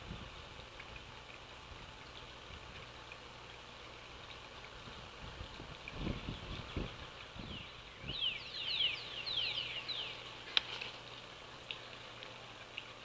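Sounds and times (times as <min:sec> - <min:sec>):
songbird whistled song: 0:06.2 - 0:10.3.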